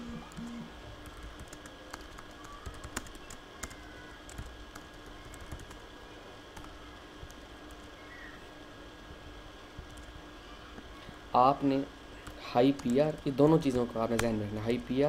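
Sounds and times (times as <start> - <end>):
keyboard typing: 0.0 - 5.8, 9.8 - 10.2, 12.2 - 14.4
faint steady hum: 0.0 - 15.0.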